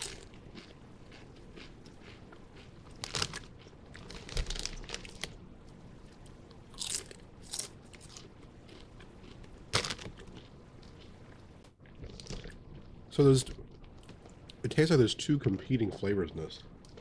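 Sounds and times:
potato chips crunching: 0:00.0 - 0:05.4, 0:06.7 - 0:11.1.

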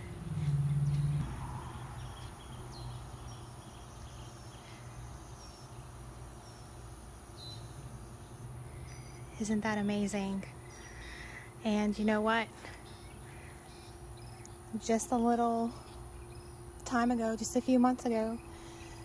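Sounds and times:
steady low hum: 0:00.0 - 0:19.0
insects trilling: 0:01.0 - 0:14.9.

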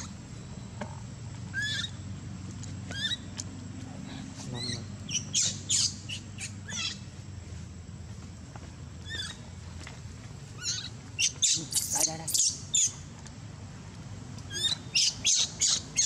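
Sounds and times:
infant monkey squeaking calls: 0:01.5 - 0:02.0, 0:02.9 - 0:03.3, 0:04.5 - 0:07.1, 0:09.0 - 0:09.4, 0:10.6 - 0:13.0, 0:14.5 - 0:16.0.

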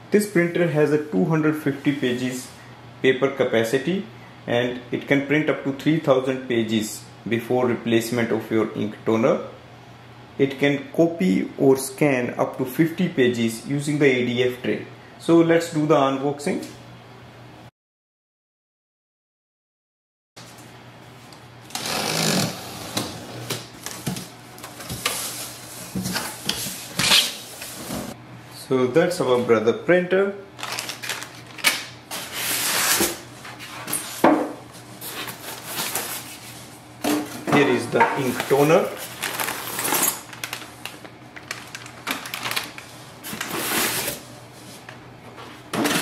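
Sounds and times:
foil bag crinkling: 0:30.6 - 0:32.9, 0:38.2 - 0:44.2
cardboard flaps scraping and rustling: 0:41.5 - 0:44.7.

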